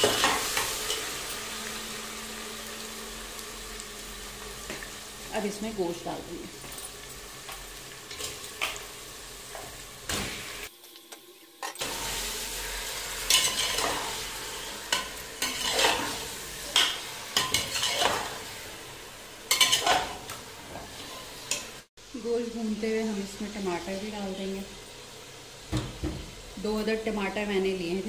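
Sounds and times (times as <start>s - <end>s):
meat sizzling in hot oil: 0.0s - 28.0s
steel spatula scraping a pot: 14.9s - 16.2s, 16.8s - 18.3s.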